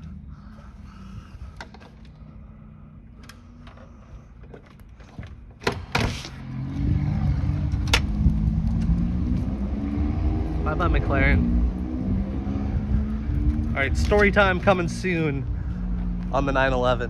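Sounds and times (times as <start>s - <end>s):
car engine accelerating: 6.3s - 16.6s.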